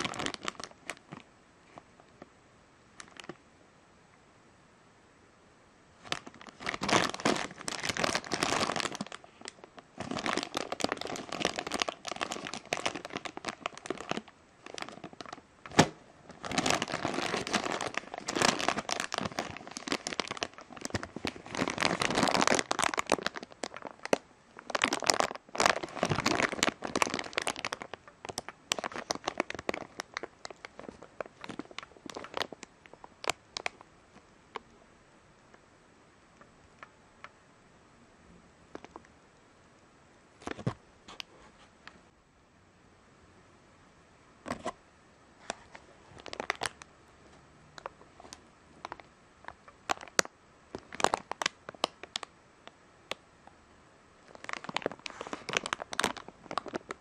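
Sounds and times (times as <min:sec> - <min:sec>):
plastic bag crinkling: 0:00.0 - 0:01.9, 0:03.0 - 0:03.4, 0:06.0 - 0:33.8, 0:45.4 - 0:46.9, 0:47.8 - 0:52.3, 0:54.2 - 0:57.0.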